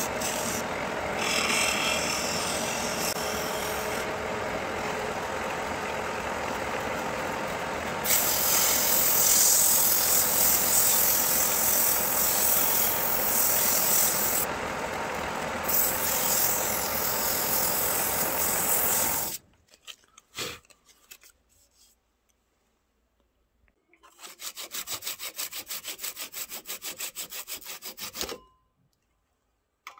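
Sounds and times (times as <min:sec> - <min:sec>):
pad rubbing spinning wood: 0:00.0 - 0:14.5
wood lathe humming: 0:00.0 - 0:19.4.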